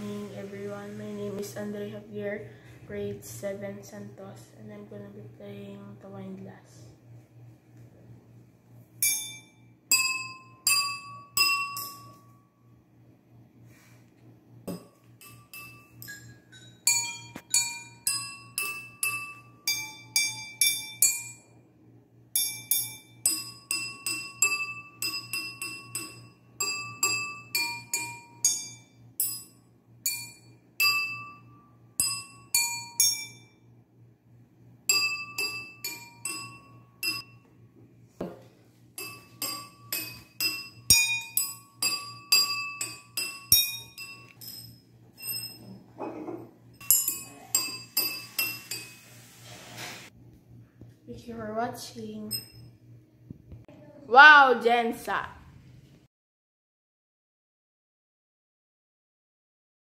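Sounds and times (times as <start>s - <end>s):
wine glasses ringing notes: 14.7s - 21.5s, 39.0s - 45.8s.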